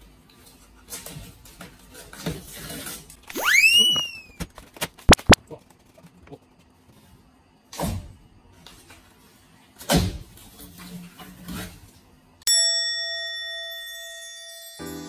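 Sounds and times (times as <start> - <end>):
plasterboard scraping and crumbling: 0.8 - 3.2
bell-like chime: 12.5 - 15.0.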